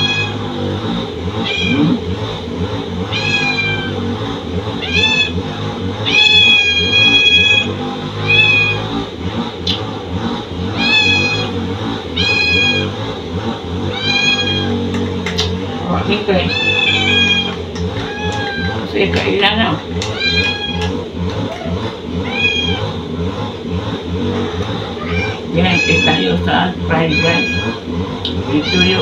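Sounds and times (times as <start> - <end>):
cat meowing: 0.0 - 0.4, 1.4 - 2.1, 3.1 - 4.0, 4.8 - 5.4, 6.0 - 8.8, 10.8 - 11.6, 12.2 - 12.9, 13.9 - 14.8, 16.4 - 18.9, 20.0 - 22.9, 25.0 - 27.9, 28.6 - 29.0.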